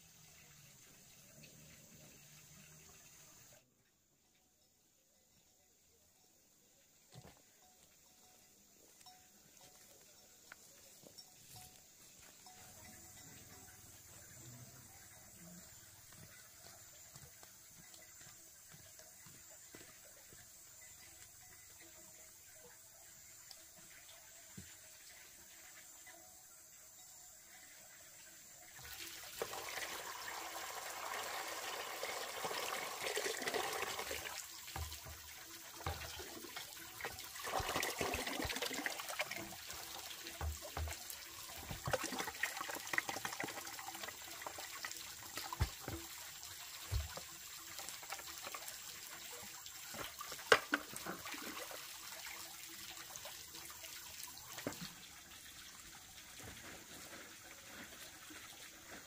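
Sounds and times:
water running and splashing: 27.8s - 59.0s.

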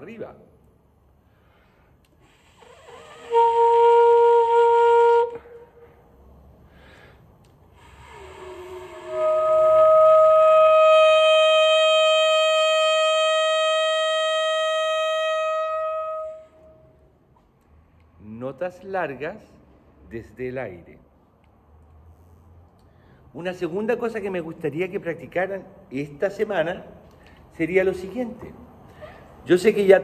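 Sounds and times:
saxophone long notes: 2.6s - 5.7s, 7.8s - 16.7s.

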